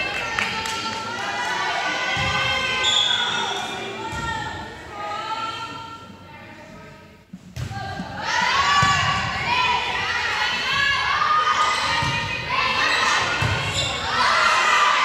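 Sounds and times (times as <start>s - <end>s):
players and spectators shouting: 8.2s - 15.0s.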